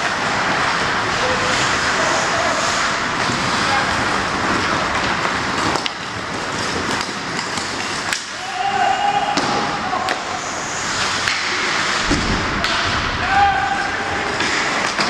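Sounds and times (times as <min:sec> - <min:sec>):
arena noise: 0:00.0 - 0:15.0
sticks and puck clicking on ice: 0:04.4 - 0:08.5, 0:11.0 - 0:12.0, 0:14.3 - 0:15.0
person shouting: 0:13.2 - 0:14.3.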